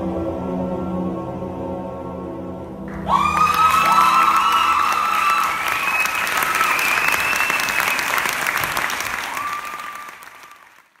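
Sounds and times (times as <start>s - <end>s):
audience applauding: 2.9s - 11.0s
high held cheers: 2.9s - 11.0s.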